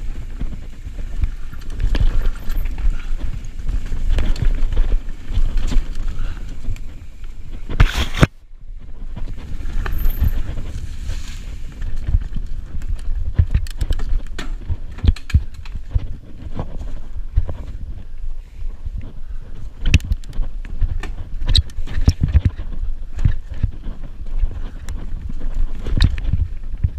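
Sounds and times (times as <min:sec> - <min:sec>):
bike clattering over roots and rocks: 0:00.0 - 0:08.4, 0:09.0 - 0:17.9
wind rumbling on microphone: 0:00.0 - 0:26.9.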